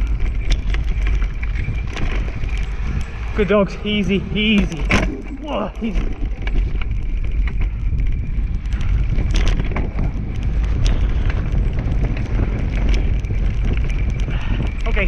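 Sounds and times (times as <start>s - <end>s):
scooter rolling over dirt trail: 0.0s - 15.0s
clicks and rattles: 4.4s - 15.0s.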